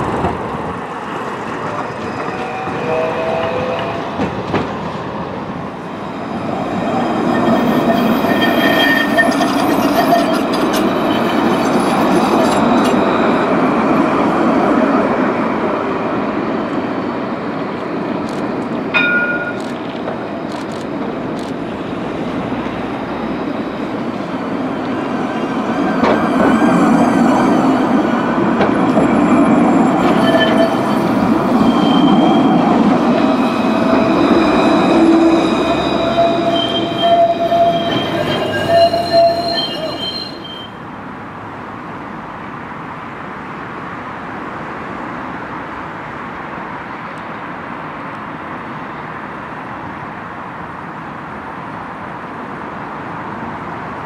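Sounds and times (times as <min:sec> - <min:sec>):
tram wheels squealing on rails: 0:00.0 - 0:15.0, 0:16.5 - 0:41.0
city background: 0:00.0 - 0:54.0.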